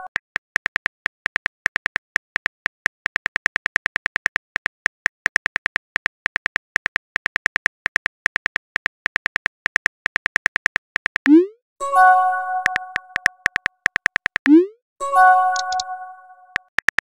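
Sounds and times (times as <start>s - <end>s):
phone keyboard tap clicks: 12.6s - 14.6s, 15.6s - 15.9s.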